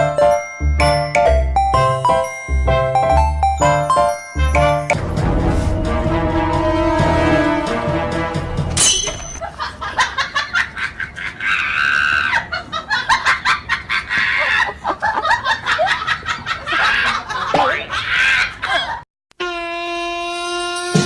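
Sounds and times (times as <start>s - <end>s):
person cackling with laughter: 9.4s - 19.0s.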